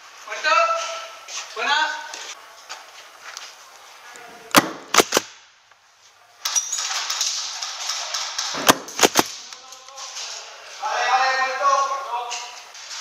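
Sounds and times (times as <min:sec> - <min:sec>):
airsoft gun shots: 0:04.5 - 0:05.4, 0:06.8 - 0:09.4.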